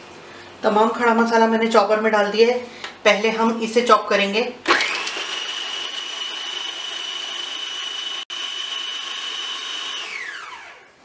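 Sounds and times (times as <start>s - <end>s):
food processor motor whining: 4.6s - 11.0s.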